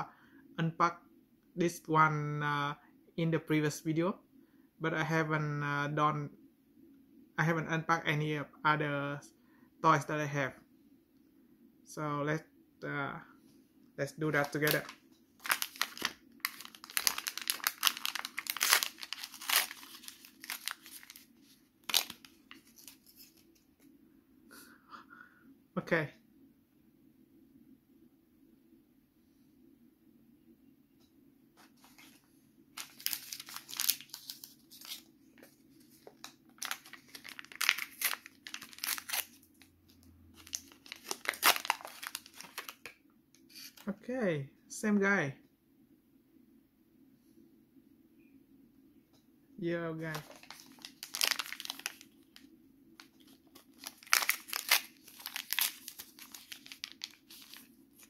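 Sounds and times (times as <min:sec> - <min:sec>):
plastic packet crinkling and tearing: 0:14.4 - 0:23.7, 0:32.8 - 0:35.1, 0:35.8 - 0:39.5, 0:40.4 - 0:42.9, 0:50.1 - 0:58.0.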